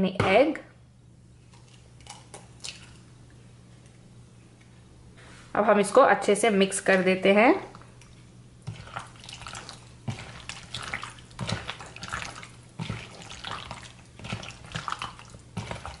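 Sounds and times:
hand squelching raw chicken: 0:08.6 - 0:16.0.

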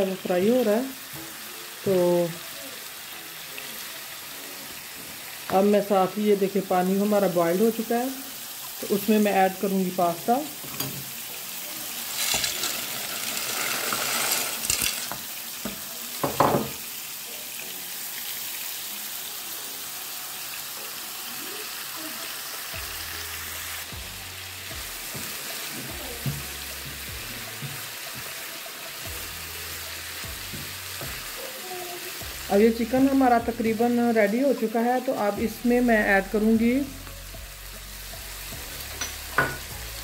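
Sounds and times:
chicken sizzling in oil: 0:00.0 - 0:40.0.

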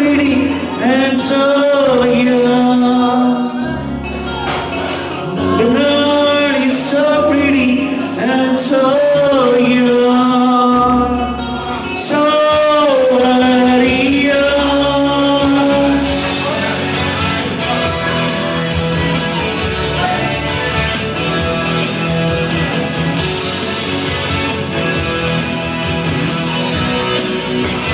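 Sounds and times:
man singing into microphone: 0:00.0 - 0:18.2
backing music: 0:00.0 - 0:27.9.

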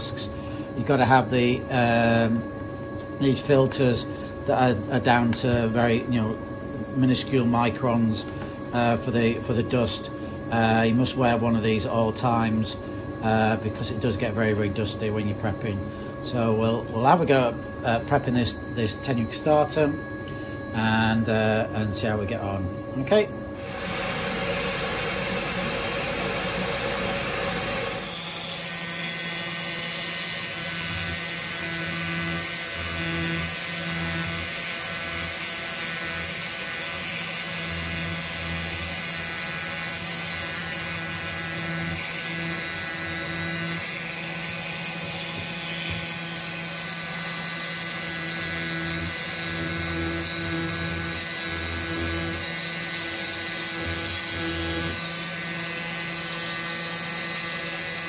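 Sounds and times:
steady high whine: 0:00.0 - 0:28.7
air pen buzzing on rock: 0:00.0 - 0:58.0.

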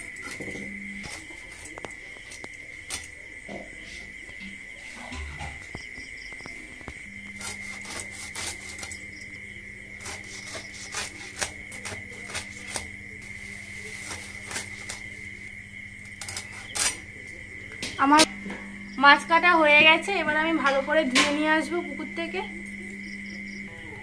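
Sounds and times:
steady high whine: 0:00.0 - 0:24.0
blade cutting through fish: 0:07.2 - 0:09.3, 0:09.9 - 0:15.2
low hum: 0:11.8 - 0:24.0.

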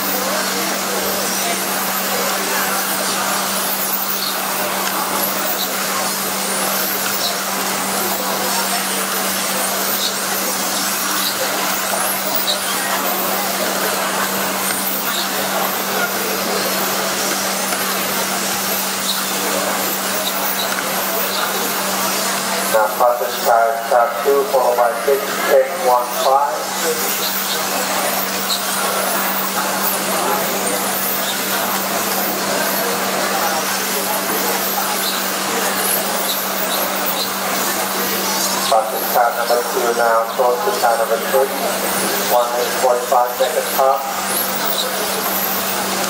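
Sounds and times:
rc cars motor and tyre noise: 0:00.0 - 0:46.0
high shifting motor whines: 0:00.1 - 0:23.5.

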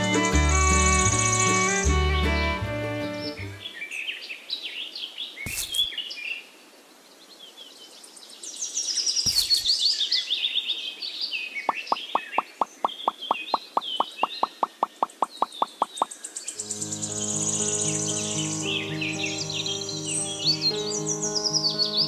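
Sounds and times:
birds chirping and trilling: 0:00.0 - 0:22.0
short plopping pops: 0:11.7 - 0:16.1.

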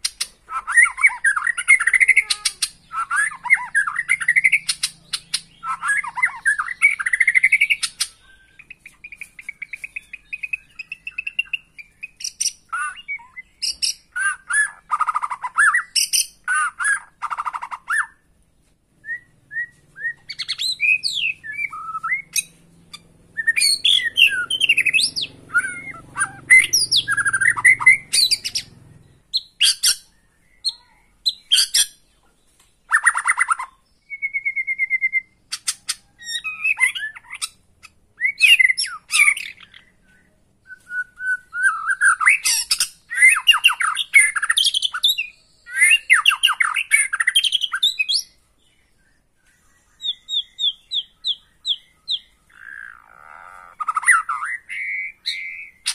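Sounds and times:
bird singing varied song: 0:00.0 - 0:55.9
bird held whistle: 0:23.4 - 0:28.3.

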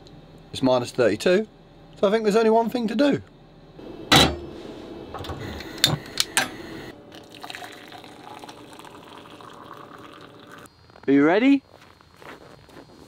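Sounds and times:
metal kettle clanks: 0:04.1 - 0:04.5
water pouring into cup: 0:07.0 - 0:10.7.

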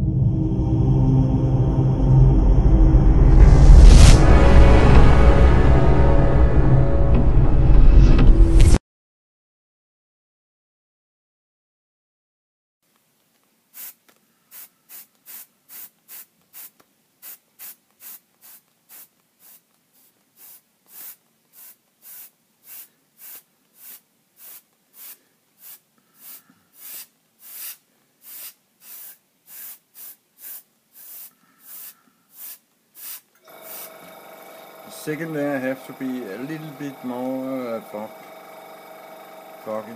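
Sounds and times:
airbrush spraying in hissing bursts: 0:13.7 - 0:39.9.

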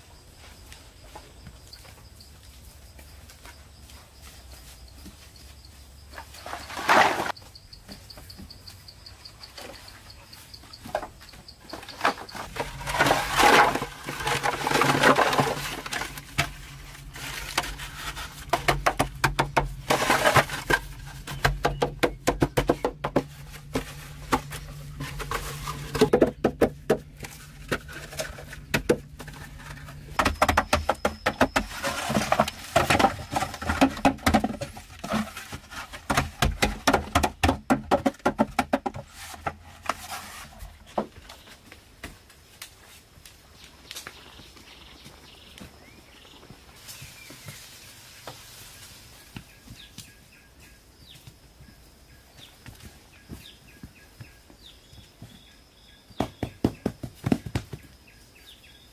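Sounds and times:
scraping or rustling bursts: 0:06.2 - 0:07.4, 0:11.9 - 0:19.0, 0:19.8 - 0:21.4, 0:23.2 - 0:26.2, 0:27.2 - 0:37.2, 0:38.3 - 0:40.9
knocking and tapping: 0:18.5 - 0:19.8, 0:20.6 - 0:24.6, 0:30.2 - 0:35.2, 0:36.0 - 0:39.6.

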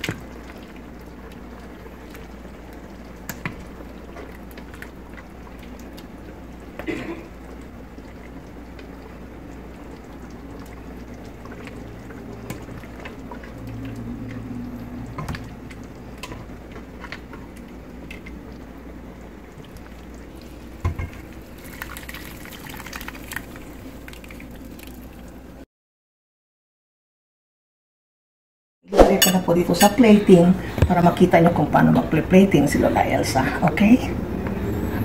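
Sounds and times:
stew sloshing and pouring: 0:08.0 - 0:25.5
low hum: 0:10.6 - 0:18.6.

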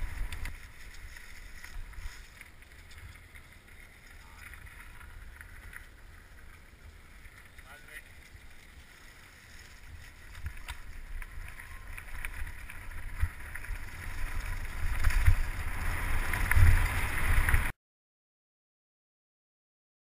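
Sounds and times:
bike rumbling: 0:00.0 - 0:17.7
bike rattling and knocking: 0:09.4 - 0:17.7.

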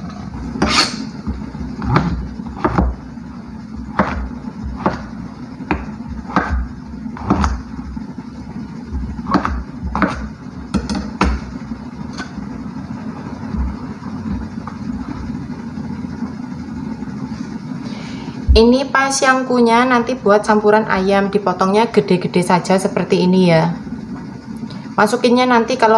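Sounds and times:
steady low hum: 0:00.0 - 0:25.9
knife chopping on plastic cutting board: 0:00.6 - 0:03.0, 0:03.8 - 0:07.6, 0:09.0 - 0:11.5.

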